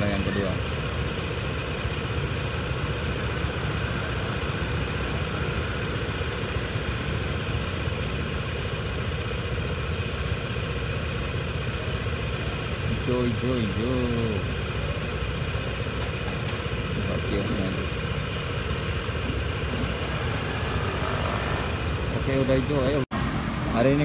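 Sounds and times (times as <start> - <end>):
traffic with engines idling: 0.0 - 24.0.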